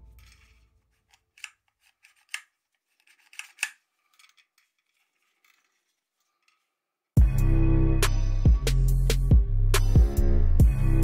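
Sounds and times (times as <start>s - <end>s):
plastic clicks and scrapes: 0.1s - 6.8s.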